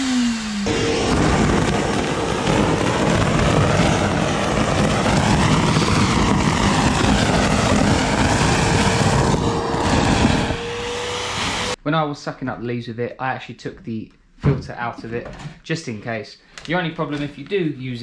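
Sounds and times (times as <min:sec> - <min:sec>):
vacuum motor whine: 0:00.0 - 0:02.5, 0:05.2 - 0:11.8
vacuum air rush: 0:00.0 - 0:11.8.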